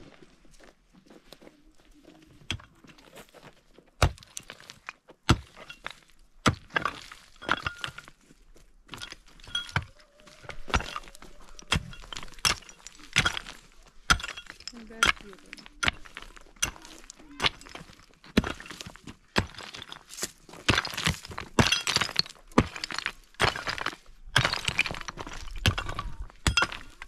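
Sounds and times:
sharp knocks and cracks: 10.7 - 27.0.

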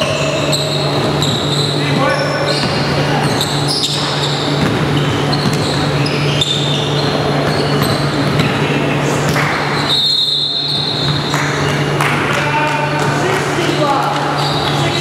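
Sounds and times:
sneakers squeaking: 0.0 - 15.0
steady low hum: 0.0 - 15.0
basketball bouncing on hardwood: 4.0 - 5.8, 7.4 - 8.6.

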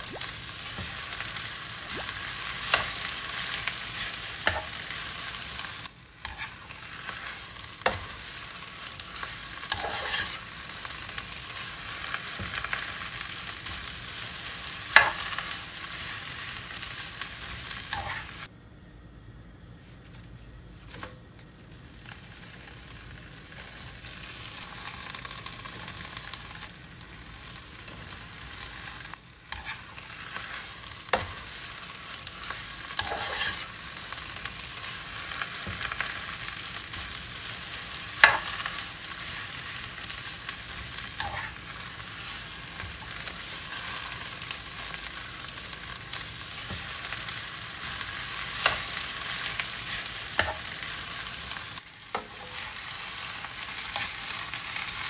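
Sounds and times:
frying hiss: 0.0 - 55.0
spatula scraping and tapping pan: 4.4 - 4.8, 6.2 - 8.2, 9.7 - 10.4, 29.5 - 31.4, 33.0 - 33.7, 50.4 - 50.7, 52.1 - 52.7.

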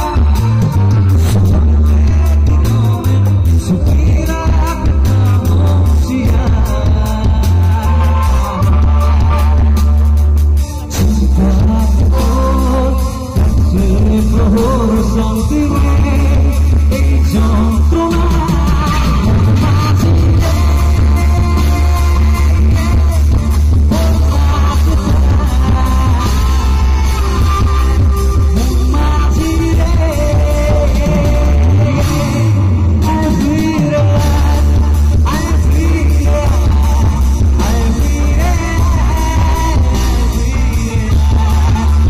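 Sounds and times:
drums: 0.0 - 42.0
electric bass: 0.0 - 42.0
electric guitar: 0.0 - 42.0
man singing into a microphone: 0.0 - 42.0.

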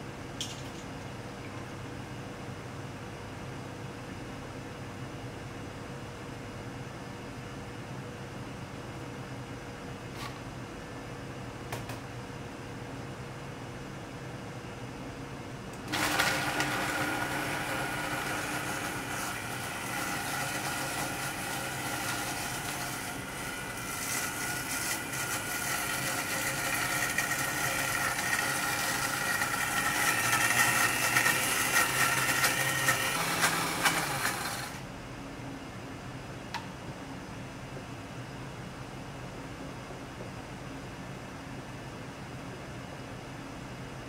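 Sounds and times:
blender motor running: 15.9 - 34.8.

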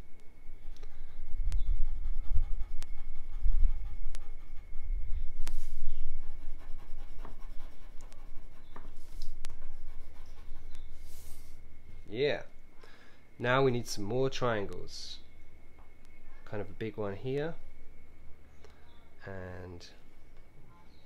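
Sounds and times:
low rumble: 0.0 - 7.1
pencil scratching on paper: 1.8 - 11.6.

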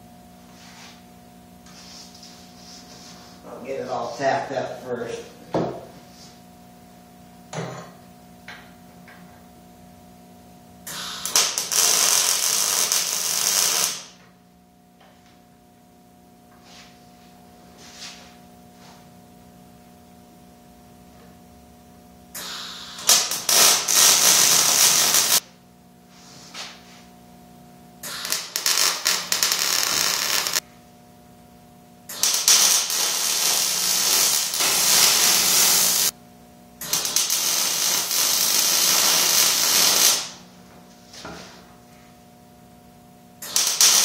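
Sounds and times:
steady low hum: 0.0 - 43.8
welding arc crackling: 10.9 - 14.2, 22.4 - 25.4, 28.0 - 30.6, 32.1 - 36.2, 36.8 - 40.4, 43.4 - 44.0.

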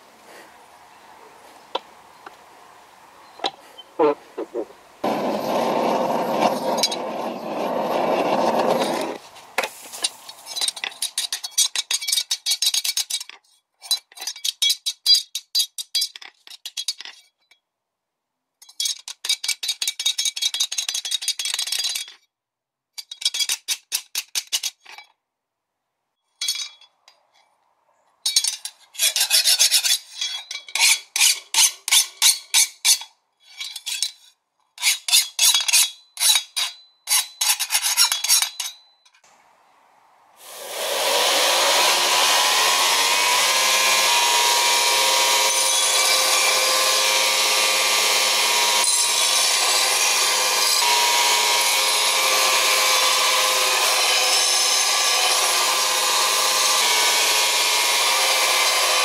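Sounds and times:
file rasping on steel blade: 28.9 - 33.0, 34.8 - 38.6.

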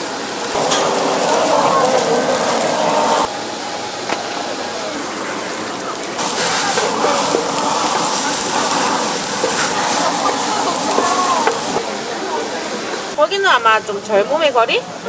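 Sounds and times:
seafood sizzling in butter: 0.5 - 3.3, 4.9 - 11.9.

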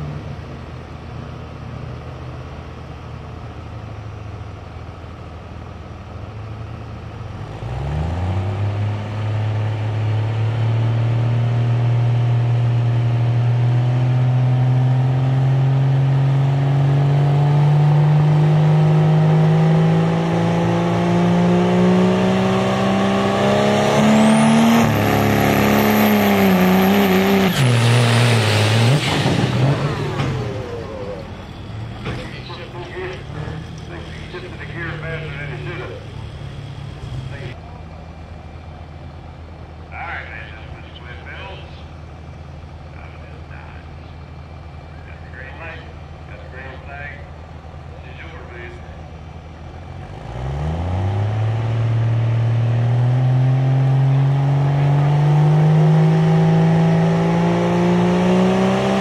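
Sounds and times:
truck engine revving under load: 0.0 - 59.0
high whine: 24.2 - 37.6.

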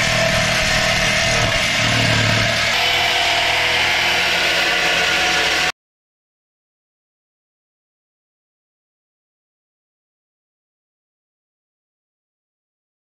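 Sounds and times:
reciprocating saw cutting metal: 0.0 - 5.7.

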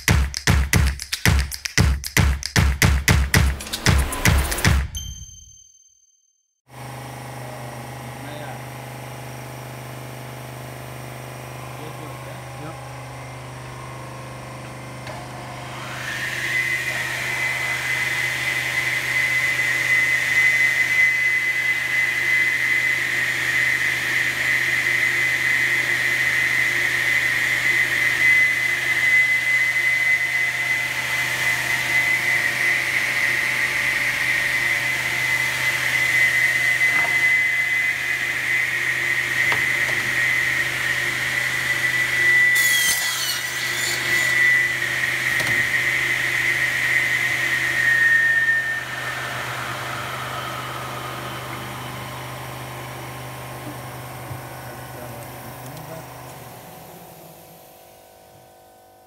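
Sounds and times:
high sliding sound: 3.2 - 5.3
saw motors whining: 6.8 - 58.5.

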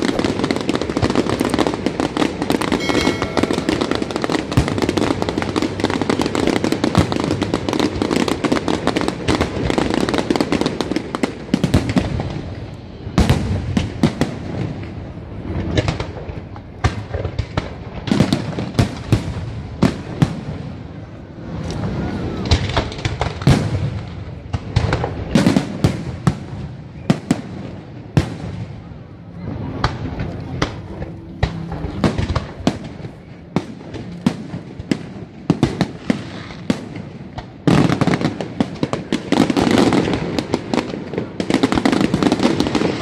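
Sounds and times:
firework shells banging: 0.0 - 6.9
fireworks crackling: 0.0 - 43.0.

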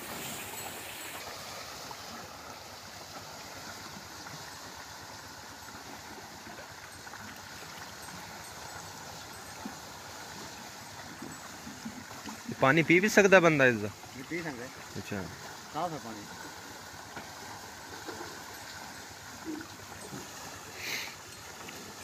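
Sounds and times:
water splashing from buckets: 0.0 - 22.0.

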